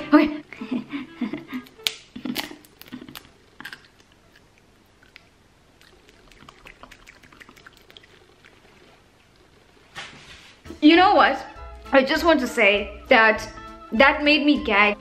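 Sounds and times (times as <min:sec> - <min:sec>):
crunching seaweed snack: 0:01.8 - 0:08.8.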